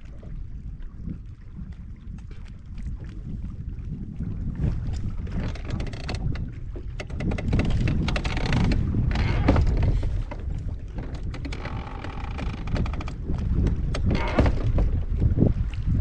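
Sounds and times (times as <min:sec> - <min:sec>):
waves slapping boat hull: 0:00.0 - 0:16.0
wind buffeting microphone: 0:00.0 - 0:16.0.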